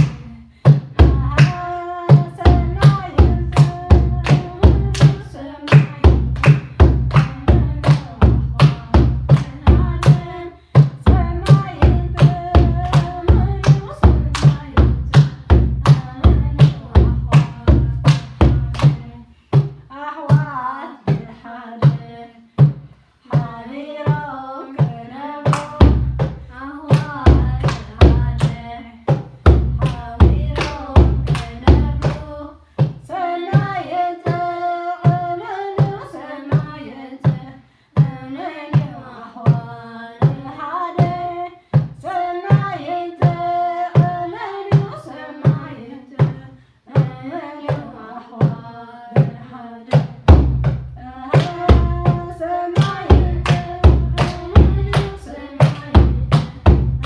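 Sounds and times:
drum beat: 0.0s - 19.0s, 29.1s - 32.2s, 50.1s - 57.0s
hand claps: 0.0s - 19.8s, 25.4s - 33.7s, 51.4s - 57.0s.

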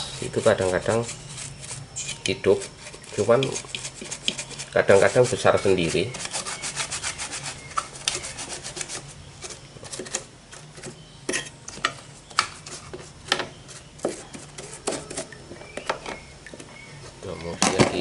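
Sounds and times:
brush scrubbing circuit board: 0.0s - 9.6s.

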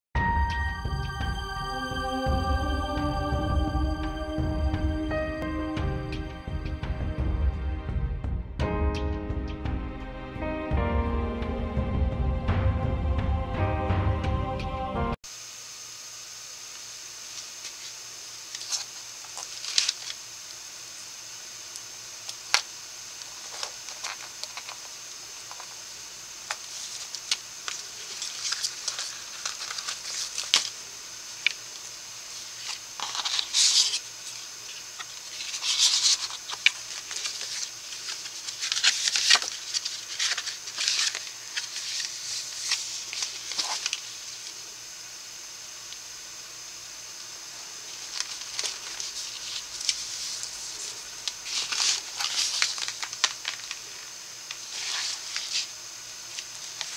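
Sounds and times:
faint high hiss: 15.3s - 56.9s
paper pages rustling: 18.5s - 20.2s, 22.3s - 25.8s, 26.5s - 44.6s, 47.9s - 56.9s.

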